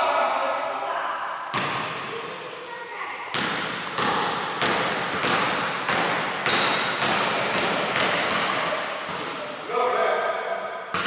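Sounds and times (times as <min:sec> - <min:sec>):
basketball bouncing on hardwood: 0:01.5 - 0:02.0, 0:03.3 - 0:09.3.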